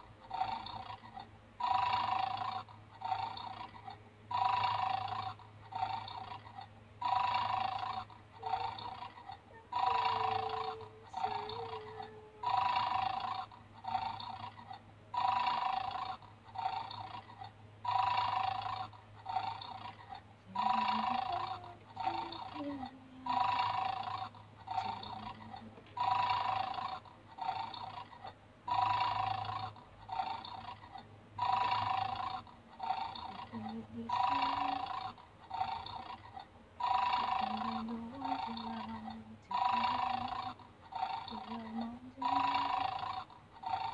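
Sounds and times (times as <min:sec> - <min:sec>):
toy dog snoring from speaker: 0:00.0 - 0:43.9.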